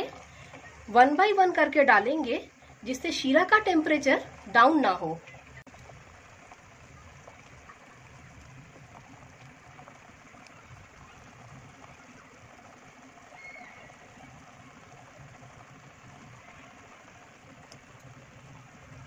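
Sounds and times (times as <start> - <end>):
syrup boiling and bubbling: 0.0 - 19.0.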